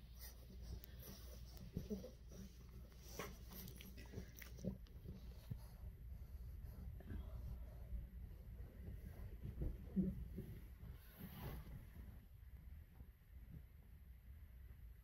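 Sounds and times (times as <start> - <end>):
puppy chewing: 0.7 - 5.4.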